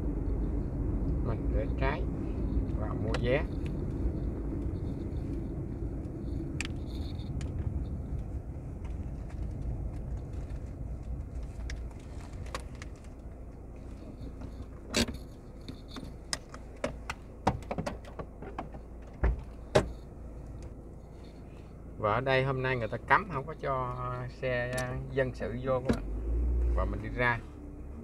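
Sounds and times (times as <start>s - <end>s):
vehicle road and wind rumble: 0.0s - 28.0s
sharp clicks and knocks: 14.0s - 20.8s.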